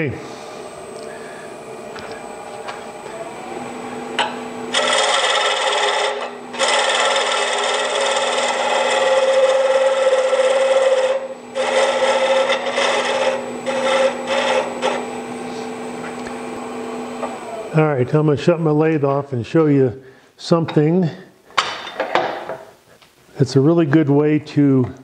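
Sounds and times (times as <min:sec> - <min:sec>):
lathe humming: 0:00.0 - 0:18.2
turning tool scraping wood: 0:04.2 - 0:16.3.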